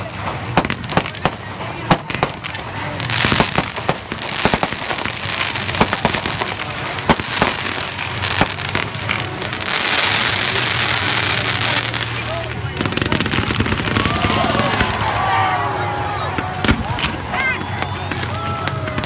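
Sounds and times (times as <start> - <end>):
fireworks pops and bangs: 0.0 - 15.2
fireworks crackling: 0.0 - 19.0.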